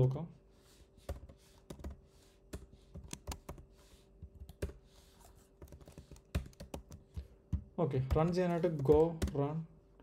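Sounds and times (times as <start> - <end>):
computer keyboard typing: 1.1 - 3.6, 4.3 - 4.8, 5.6 - 9.4.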